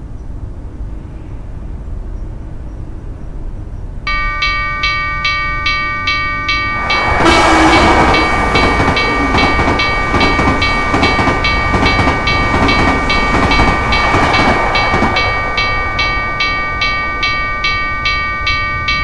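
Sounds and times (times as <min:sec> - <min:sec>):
freight train rumble: 0:00.0 - 0:19.0
railroad crossing bell ringing: 0:04.1 - 0:19.0.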